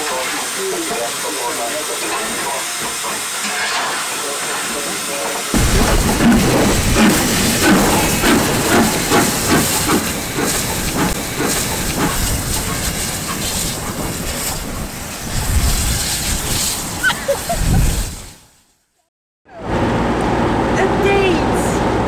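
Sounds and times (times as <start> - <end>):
steam locomotive venting steam: 0.0 - 18.8.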